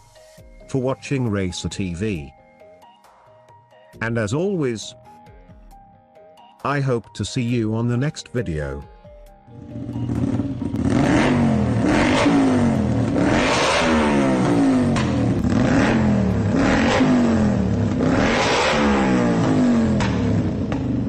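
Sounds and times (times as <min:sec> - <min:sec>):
motorcycle engine revving: 0:09.5 - 0:21.0.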